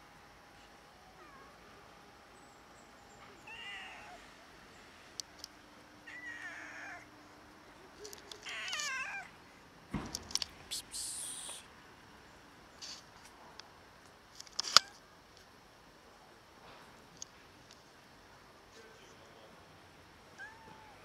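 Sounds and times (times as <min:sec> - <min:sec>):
cat meowing: 0:03.4 - 0:04.2, 0:06.1 - 0:07.1, 0:08.4 - 0:09.3, 0:20.4 - 0:21.0.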